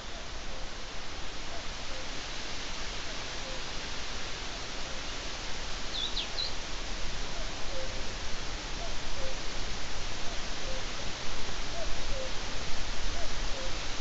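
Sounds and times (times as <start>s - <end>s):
outdoor ambience hiss: 0.0s - 14.0s
bird high chirp: 5.9s - 6.5s.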